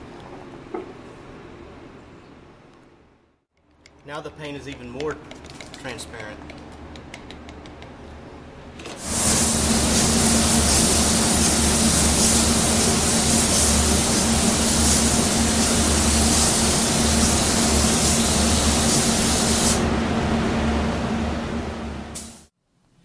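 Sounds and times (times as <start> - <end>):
spray gun hissing: 9.0 - 19.8.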